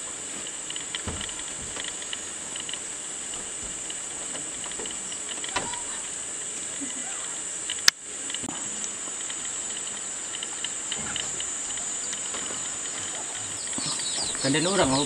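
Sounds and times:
insects chorus: 0:00.0 - 0:15.0
faint clicks: 0:00.4 - 0:15.0
soft knocks: 0:01.0 - 0:02.2.

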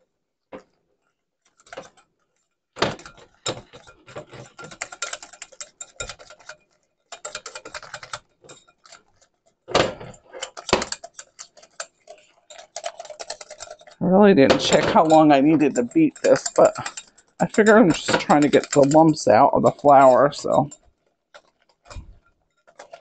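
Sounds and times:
whisk clicking against bowl: 0:03.0 - 0:09.0, 0:10.4 - 0:20.8.

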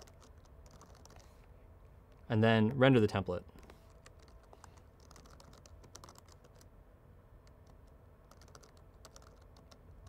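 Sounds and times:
faint keyboard typing: 0:00.0 - 0:01.5, 0:03.5 - 0:06.7, 0:07.4 - 0:10.0.

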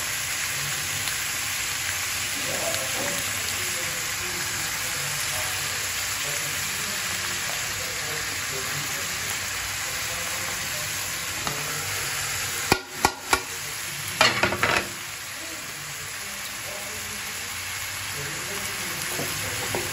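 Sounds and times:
onions sizzling in hot oil: 0:00.0 - 0:19.9
utensil knocking against pan: 0:12.7 - 0:13.5, 0:14.2 - 0:14.9.

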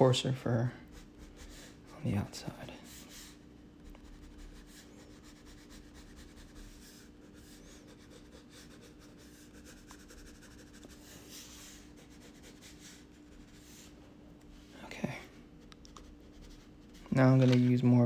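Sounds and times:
steady hum: 0:00.0 - 0:18.0
crayon scratching on paper: 0:00.9 - 0:14.0, 0:15.9 - 0:17.3.

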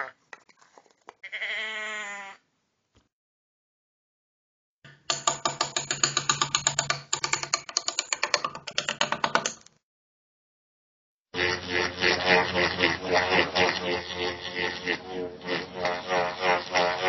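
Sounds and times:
rapid sharp wooden clicks: 0:04.9 - 0:09.8.

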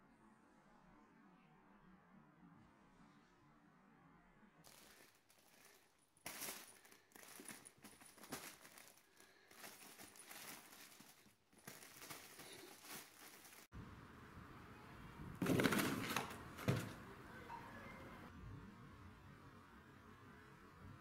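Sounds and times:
rustling and crinkling fabric: 0:04.7 - 0:13.7, 0:15.4 - 0:17.0.

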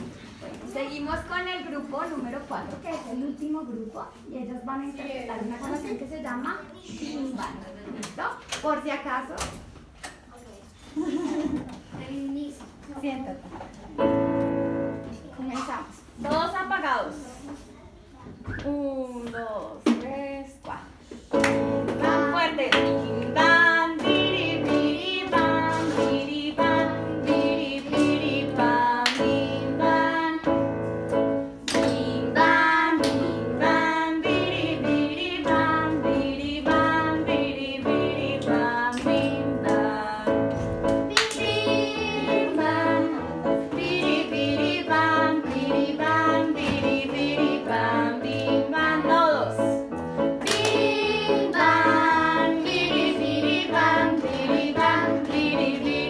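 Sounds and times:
children singing: 0:21.9 - 0:30.7, 0:41.1 - 0:49.2, 0:50.4 - 0:56.0.

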